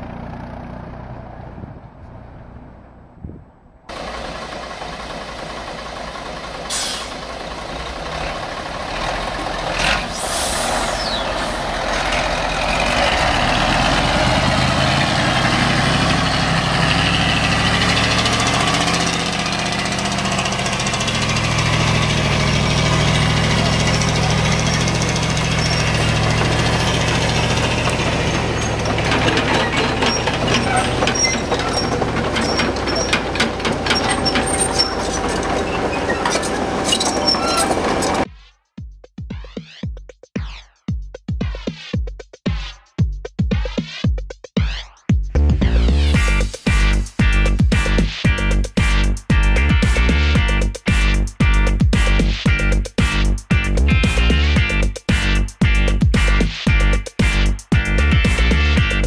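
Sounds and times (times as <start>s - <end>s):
diesel truck engine straining: 0.0s - 38.3s
air hiss: 6.7s - 7.2s, 10.1s - 11.0s.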